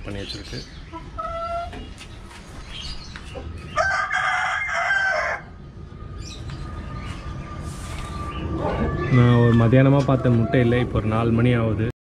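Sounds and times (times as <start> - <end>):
rooster crowing: 3.8 - 5.6.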